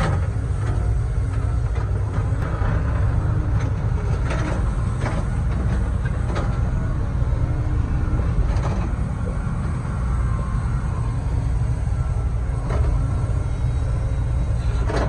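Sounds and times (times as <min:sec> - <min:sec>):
excavator engine rumble: 0:00.0 - 0:15.0.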